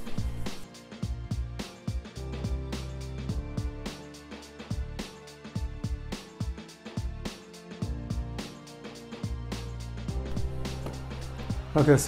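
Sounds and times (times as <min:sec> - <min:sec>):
steady drum beat: 0:00.0 - 0:03.8.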